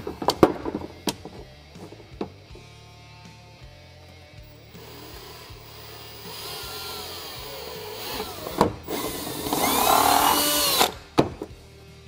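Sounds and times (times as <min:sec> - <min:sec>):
power drill whine: 0:04.5 - 0:11.0.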